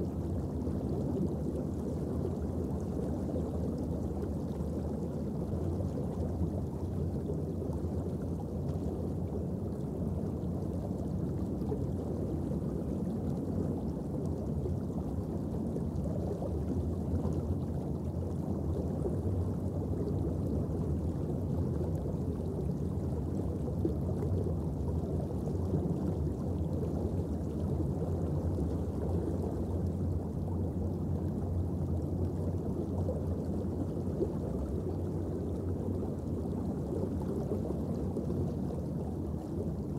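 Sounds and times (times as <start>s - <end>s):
underwater low rumble: 0.0s - 39.9s.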